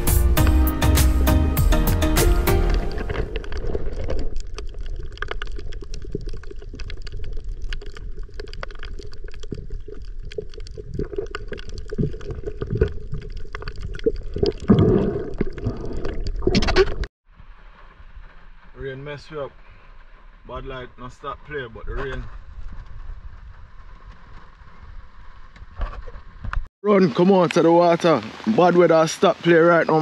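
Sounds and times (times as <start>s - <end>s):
underwater crackles and clicks: 2.5s - 17.1s, 21.9s - 26.7s
underwater rush of sea water: 2.7s - 18.7s
water gurgling surge: 3.0s - 17.1s.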